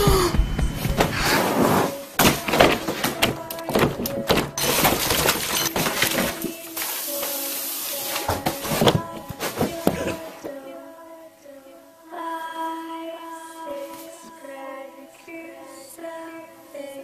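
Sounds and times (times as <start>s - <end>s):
thuds and crashes: 0.1s - 6.6s, 8.2s - 10.3s.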